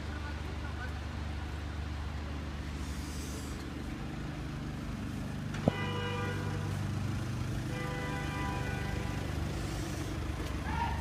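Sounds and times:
car engines idling: 0.0 - 11.0
car horn toots: 5.6 - 6.7, 7.7 - 9.3.

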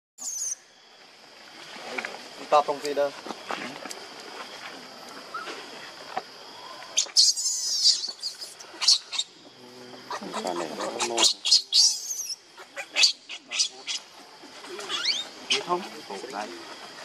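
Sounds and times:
baby macaque squealing: 7.0 - 9.3, 10.1 - 14.0, 14.8 - 15.7.

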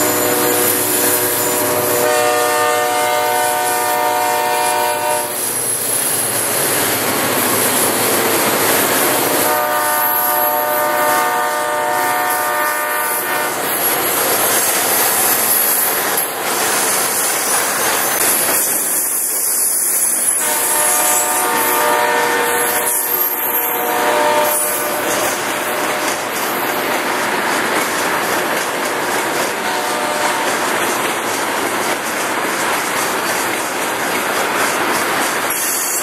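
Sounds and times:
locomotive horn: 0.0 - 5.4, 9.1 - 13.6, 20.4 - 26.2, 29.6 - 30.6
freight train rolling past: 0.0 - 36.0
wheels on rail: 0.0 - 36.0.

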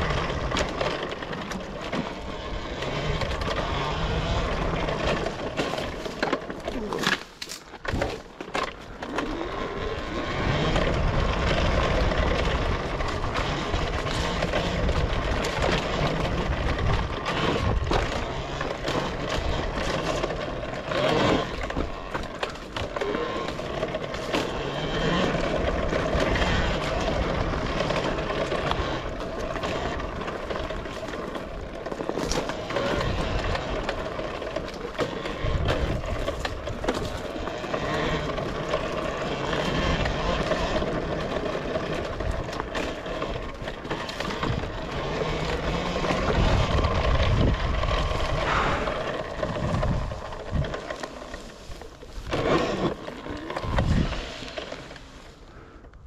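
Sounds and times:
electric motor whine: 0.0 - 55.9
wind buffeting: 44.4 - 52.5, 53.4 - 54.4.

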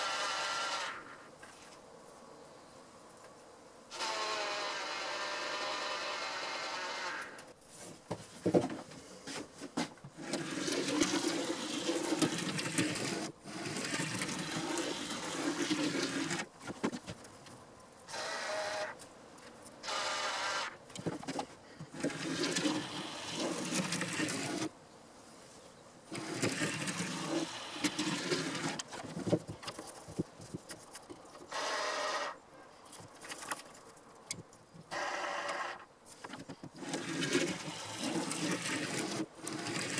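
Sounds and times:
model locomotive motor whine: 3.9 - 7.5, 18.1 - 19.0, 22.0 - 24.7, 26.1 - 28.8, 34.9 - 35.9, 36.8 - 39.9
model train wheels on track: 10.2 - 16.5, 21.9 - 24.7, 26.1 - 29.0, 36.8 - 39.9.

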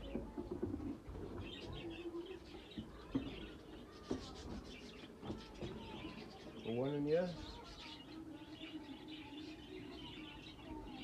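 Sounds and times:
budgerigars chirping and chattering: 0.1 - 11.0.

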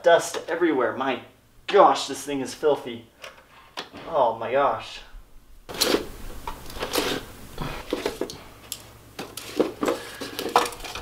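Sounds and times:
drive caddies clicking and clattering: 5.7 - 11.0.

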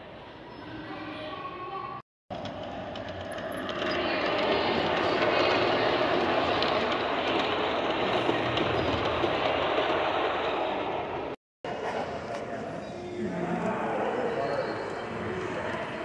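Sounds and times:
model train wheels clattering on rail: 2.3 - 11.1.

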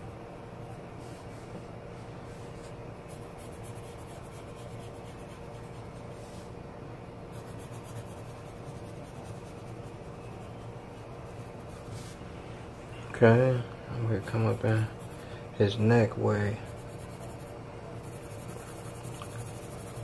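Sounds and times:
steady low hum: 0.0 - 20.0
pencil scratching on paper: 3.1 - 6.5, 7.3 - 12.2, 14.0 - 15.9, 16.5 - 20.0.

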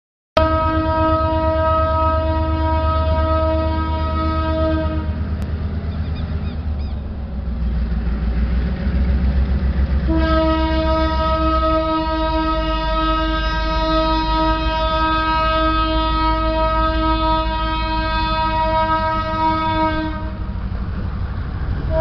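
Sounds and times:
locomotive horn: 0.4 - 5.4, 10.0 - 20.6
train engine rumble: 0.4 - 22.0.

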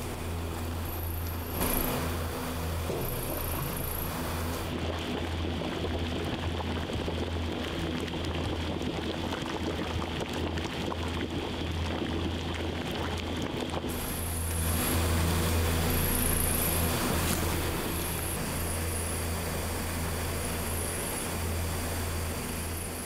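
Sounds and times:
gas burners rumbling: 0.0 - 7.8, 13.7 - 23.0
broth bubbling: 0.0 - 23.0.

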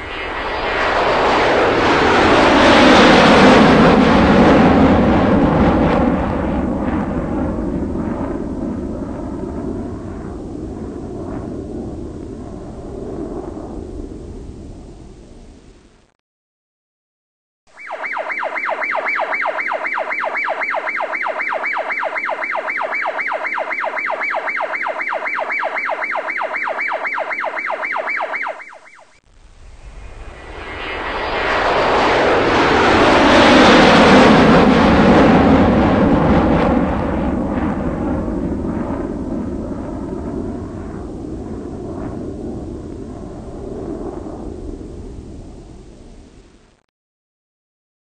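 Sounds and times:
pulsing siren-like electronic tone: 17.7 - 29.2.

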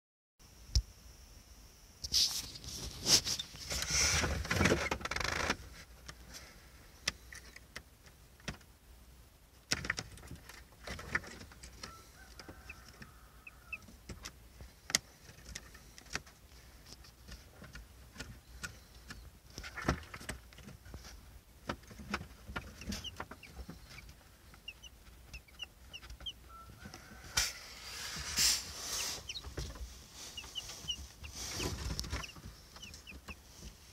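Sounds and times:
chicks peeping: 10.0 - 33.9.

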